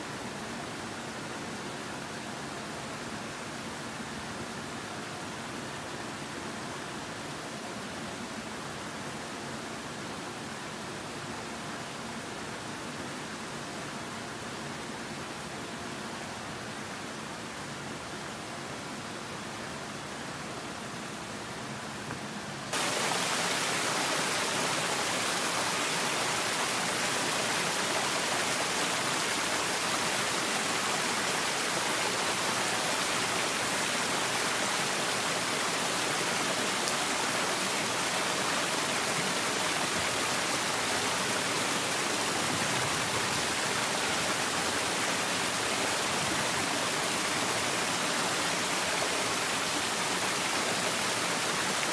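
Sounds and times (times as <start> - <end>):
stream rushing over rocks: 16.0 - 51.9.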